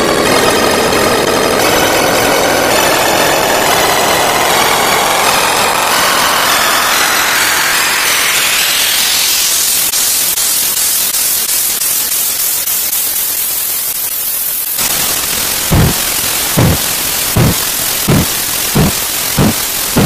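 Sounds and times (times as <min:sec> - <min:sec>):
synthesized white-noise sweep: 0:00.0 - 0:20.0
deep kick-drum thump: 0:15.8 - 0:16.0, 0:16.6 - 0:16.8.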